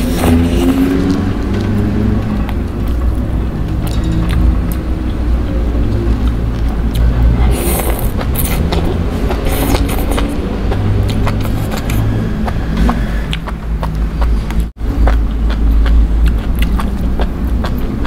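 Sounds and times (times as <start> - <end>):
slurping noodles: 0.0 - 1.2, 7.3 - 13.3
wet mouth clicks: 6.1 - 18.0.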